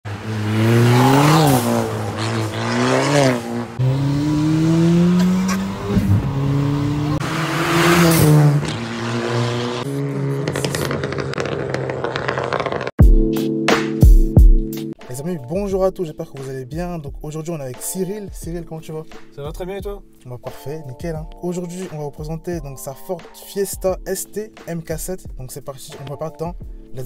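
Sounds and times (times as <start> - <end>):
car engine accelerating hard: 0.1 - 13.0.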